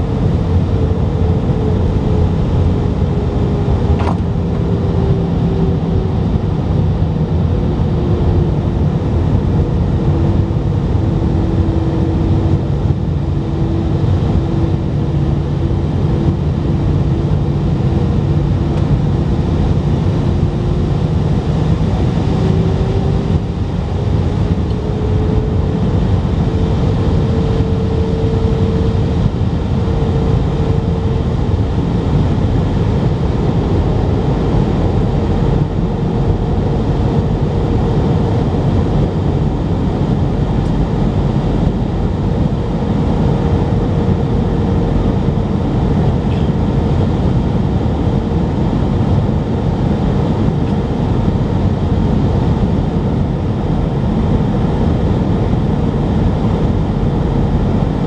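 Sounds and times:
airplane cabin engine drone: 0:00.0 - 0:58.0.

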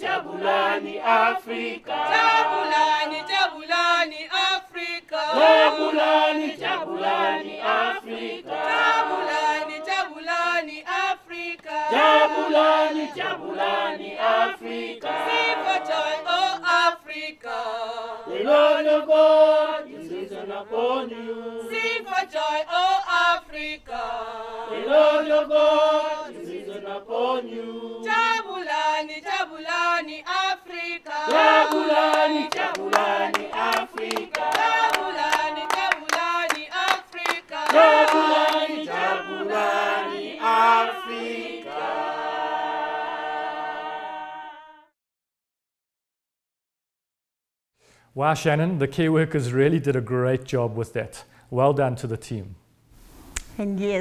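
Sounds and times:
group singing a cappella: 0:00.0 - 0:45.0
hand clapping: 0:31.2 - 0:38.9.

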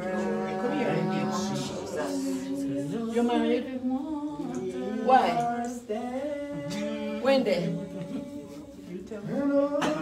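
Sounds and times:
person singing unaccompanied: 0:00.0 - 0:10.0.

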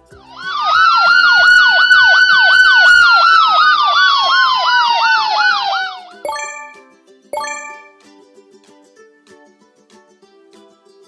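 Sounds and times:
ambulance siren warbling: 0:00.4 - 0:06.7.

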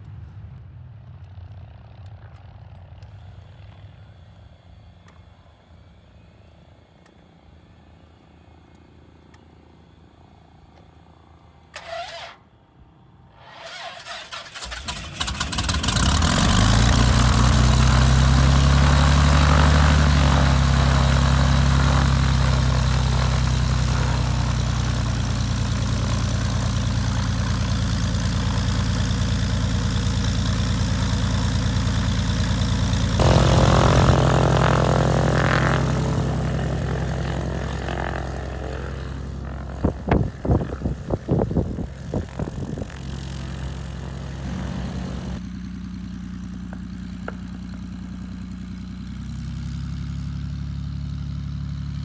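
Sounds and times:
airplane piston engine starting: 0:11.7 - 0:12.5, 0:13.3 - 0:45.4.

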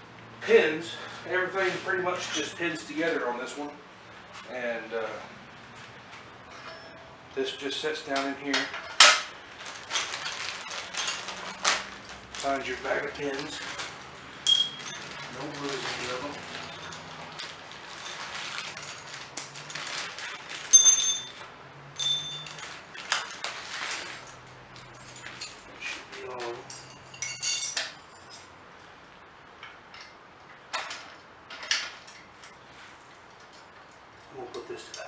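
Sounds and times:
sharp ringing metal clinks: 0:06.5 - 0:07.2, 0:14.3 - 0:15.1, 0:20.7 - 0:21.4, 0:22.0 - 0:22.6, 0:26.7 - 0:28.5
metal pins clinking and rattling: 0:08.5 - 0:23.4, 0:26.3 - 0:28.6.

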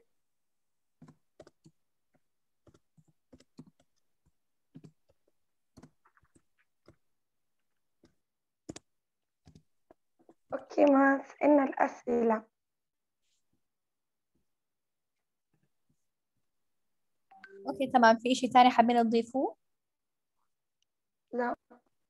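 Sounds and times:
keyboard typing clicks: 0:01.0 - 0:01.8, 0:02.6 - 0:04.0, 0:04.8 - 0:07.0, 0:08.0 - 0:09.7.

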